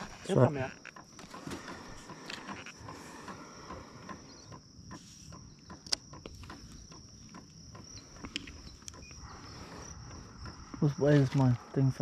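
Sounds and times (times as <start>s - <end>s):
small clicks and knocks: 0.0s - 9.3s
high-pitched insect drone: 0.0s - 12.0s.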